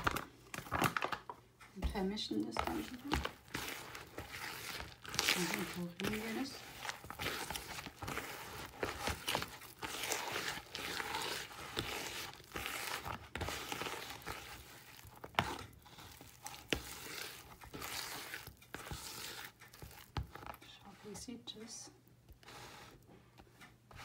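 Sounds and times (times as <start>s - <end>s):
dough scraped around a bowl: 2.4s - 23.3s.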